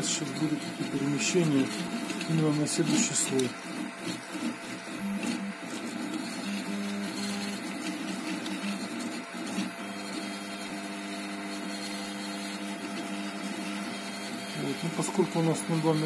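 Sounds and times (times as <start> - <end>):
fan hum: 0.0 - 16.0
stepper motors whining: 0.0 - 16.0.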